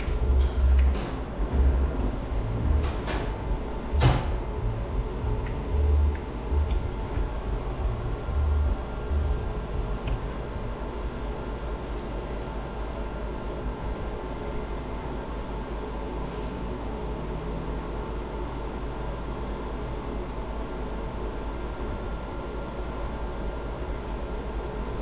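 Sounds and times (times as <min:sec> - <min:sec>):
steady electronic tones: 0:00.0 - 0:10.8.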